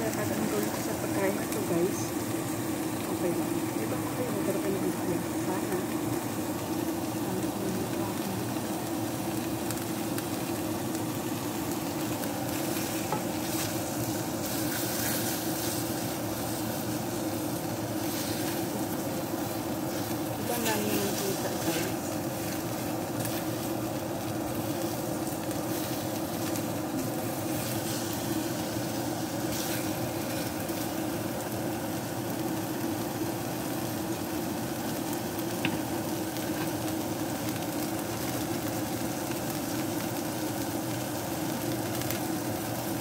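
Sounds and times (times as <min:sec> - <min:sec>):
chicken sizzling in oil: 0:00.0 - 0:43.0
wooden spoon scraping: 0:12.5 - 0:17.2.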